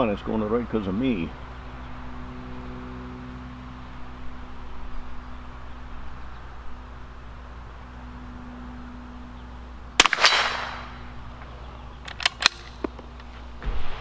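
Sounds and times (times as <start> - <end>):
rifle shot with echo: 10.0 - 11.1
rifle bolt clicks: 12.0 - 13.2.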